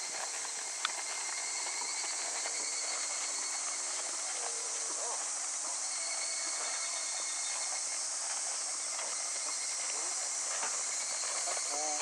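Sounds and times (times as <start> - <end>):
horse hooves on sand: 0.0 - 12.0
insects droning: 0.0 - 12.0.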